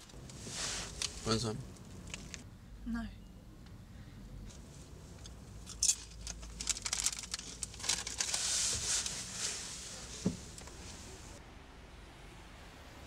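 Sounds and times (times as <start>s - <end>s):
foil crisp packet crinkling: 5.8s - 9.3s.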